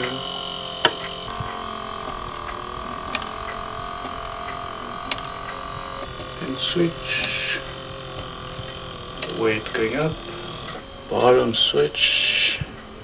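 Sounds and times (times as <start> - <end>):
clock ticking clicks: 0.0 - 13.0
faint hum: 0.0 - 13.0.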